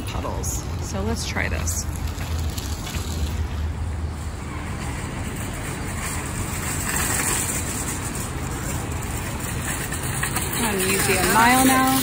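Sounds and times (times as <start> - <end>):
road vehicles passing: 0.0 - 12.0.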